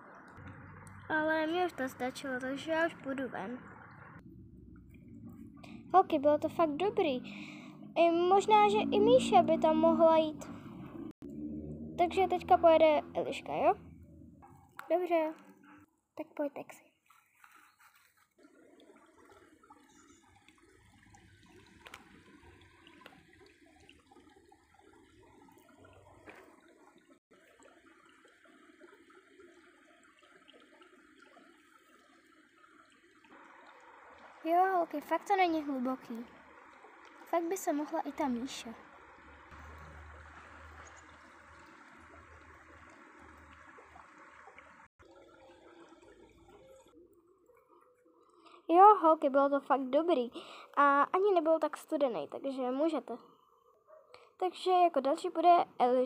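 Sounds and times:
stream water trickling: 0:00.0 - 0:56.0
low rumble: 0:10.4 - 0:12.7.

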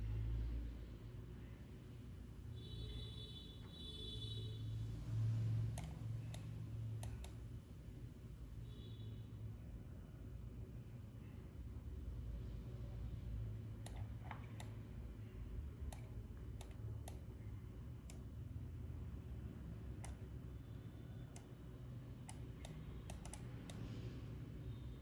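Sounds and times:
low steady hum: 0:00.0 - 0:25.0
computer mouse clicking: 0:05.7 - 0:07.6, 0:13.8 - 0:14.8, 0:15.9 - 0:17.3, 0:20.0 - 0:20.3, 0:22.2 - 0:23.9.

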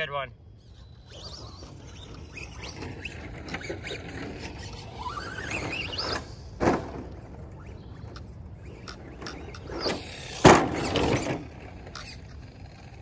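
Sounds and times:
electric motor whining: 0:00.6 - 0:13.0.

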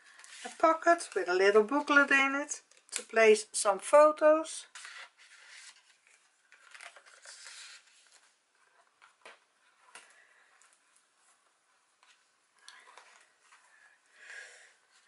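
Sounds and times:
paper and card rustling: 0:04.4 - 0:13.7.

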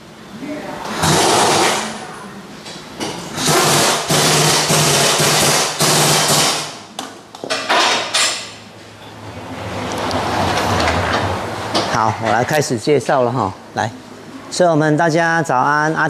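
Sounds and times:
power tool rattling hiss: 0:03.4 - 0:06.8.

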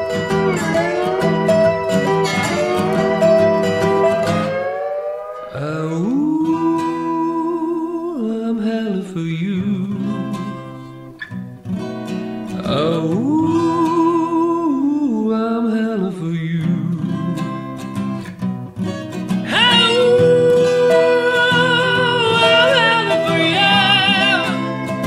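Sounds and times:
resonator guitar strummed: 0:00.0 - 0:07.8, 0:16.8 - 0:25.0
acoustic guitar strummed: 0:00.0 - 0:25.0
man singing howls: 0:04.4 - 0:10.4, 0:12.6 - 0:16.8, 0:19.5 - 0:24.8.

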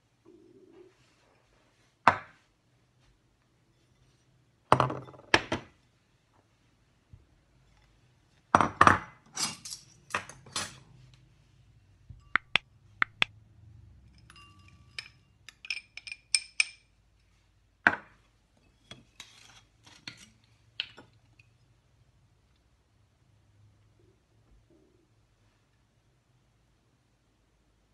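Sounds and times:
glass bowls clinking: 0:14.1 - 0:16.9.

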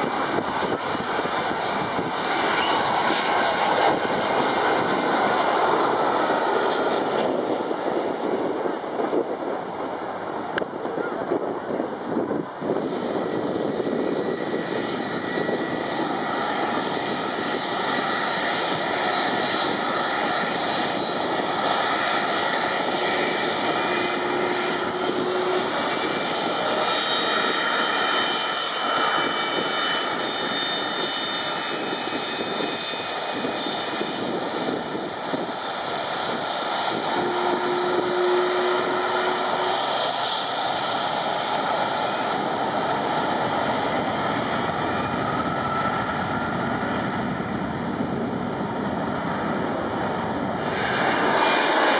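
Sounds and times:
jet engines rumbling with whine: 0:00.0 - 0:51.9.

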